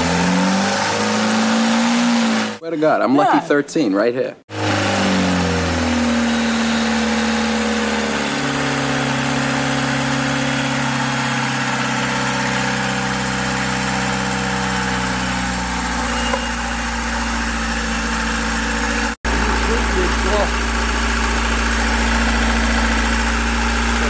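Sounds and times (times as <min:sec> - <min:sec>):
marine diesel engine idling: 0:06.6 - 0:24.0.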